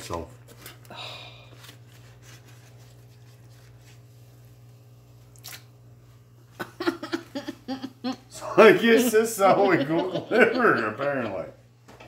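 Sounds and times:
steady low hum: 0.1 - 12.0
wet squishing of raw liver: 5.3 - 5.7.

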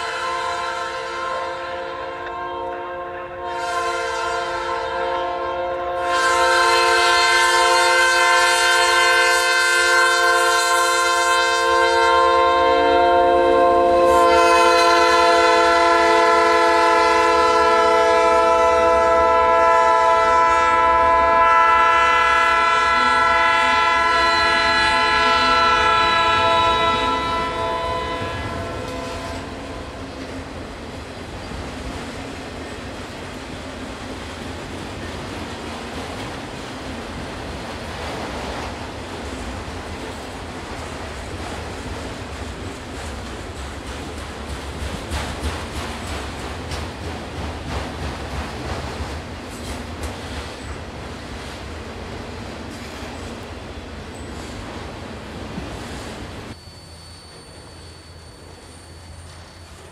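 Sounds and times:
locomotive air horn: 0.0 - 30.1
rumble of rail cars rolling: 0.0 - 59.9.

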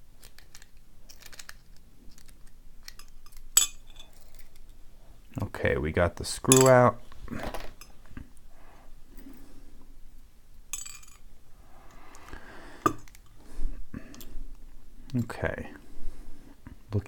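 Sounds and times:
metal padlock parts clinking: 0.2 - 4.8.

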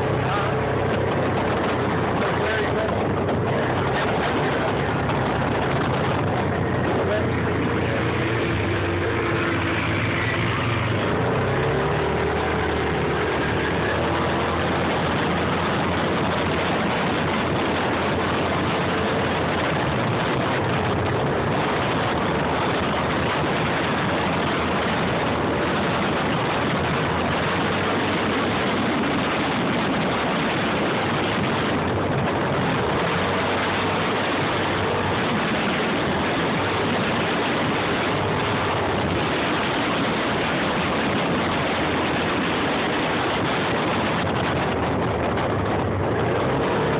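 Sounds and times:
off-road vehicle engine: 0.0 - 46.9
wind and road noise on microphone: 0.0 - 46.9.

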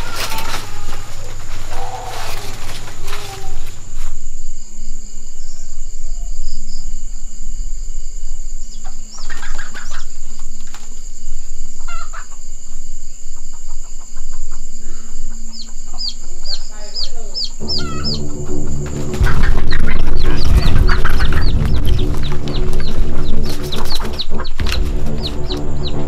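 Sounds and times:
chickens squawking and clucking: 0.0 - 3.8, 8.8 - 10.8, 11.8 - 12.5, 13.4 - 26.0
steady high whine: 0.0 - 26.0.

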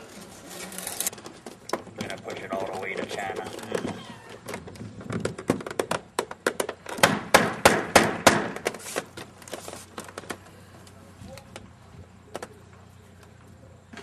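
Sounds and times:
sharp wooden knocks and clacks: 1.1 - 8.8.

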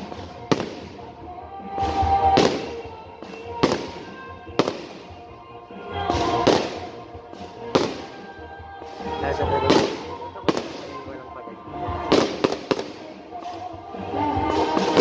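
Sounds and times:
music: 0.0 - 15.0
sharp fireworks cracks: 0.0 - 15.0.

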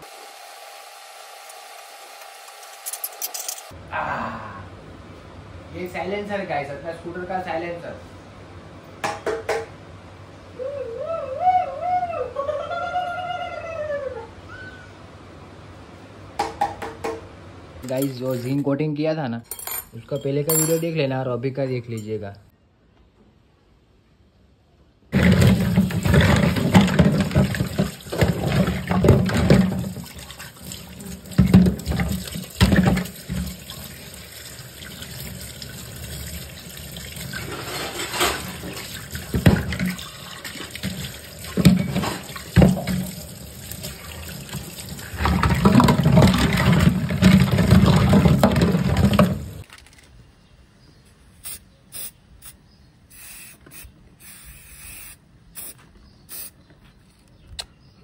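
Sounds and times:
tap water splashing into sink: 25.2 - 34.0, 37.1 - 49.6
spray paint can hissing: 51.4 - 56.6.

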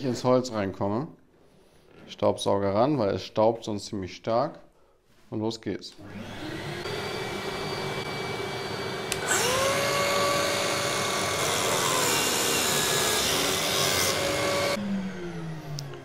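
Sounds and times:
biscuit joiner motor whine: 6.0 - 16.0
workshop vacuum running: 6.0 - 16.0.

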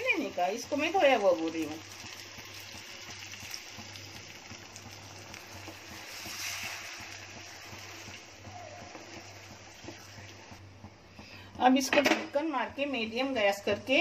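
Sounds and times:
curry simmering: 0.0 - 14.0
wooden spatula stirring: 4.5 - 11.9.

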